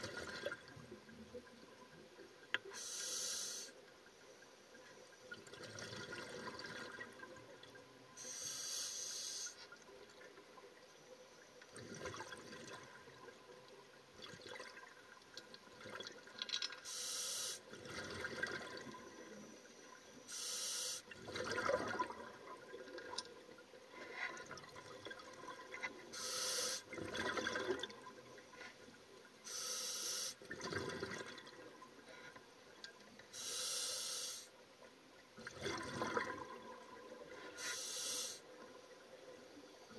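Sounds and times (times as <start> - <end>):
exhaled bubbles underwater: 0.0 - 2.0, 5.3 - 8.0, 11.7 - 16.4, 17.7 - 19.6, 21.1 - 26.1, 26.8 - 28.6, 30.4 - 32.1, 35.4 - 37.6
regulator inhale hiss: 2.7 - 3.8, 8.2 - 9.7, 16.8 - 17.7, 20.3 - 21.1, 26.1 - 26.9, 29.4 - 30.4, 33.3 - 34.6, 37.4 - 38.5.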